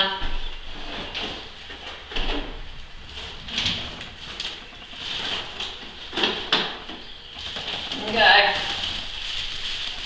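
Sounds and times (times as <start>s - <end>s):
plastic unit rubbing and scraping: 0.7s - 10.0s.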